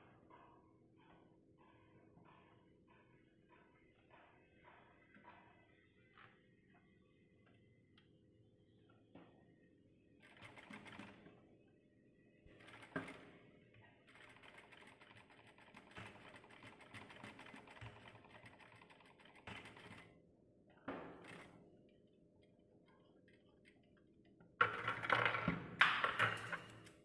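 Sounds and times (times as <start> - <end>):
sewing machine stitching: 10.2 - 11.4, 12.5 - 20.2.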